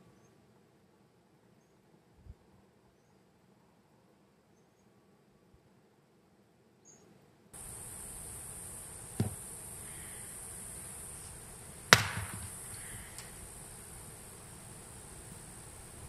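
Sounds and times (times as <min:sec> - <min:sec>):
crickets chirping: 0:07.6 - 0:16.0
sharp thump: 0:09.2 - 0:09.4, 0:11.9 - 0:12.8.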